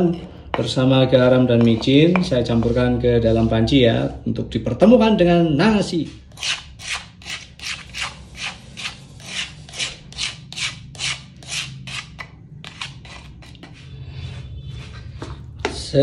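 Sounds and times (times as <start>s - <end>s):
spatula scraping a mortar: 6.0s - 15.8s.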